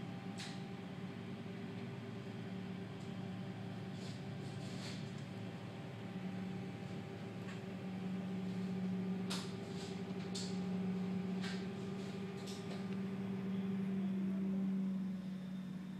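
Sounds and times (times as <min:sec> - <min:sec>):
roller engine humming muffled: 0:00.0 - 0:15.9.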